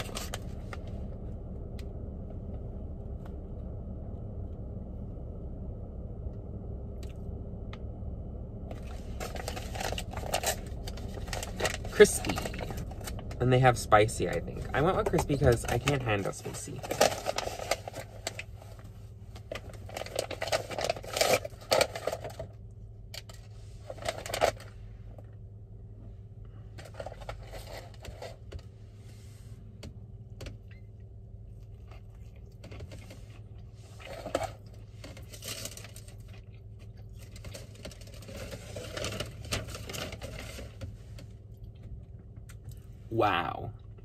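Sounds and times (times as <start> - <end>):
steady low hum: 0.0 - 44.0
paper wrapper rustling: 8.8 - 13.4, 15.6 - 18.5, 19.5 - 22.5, 37.2 - 40.8.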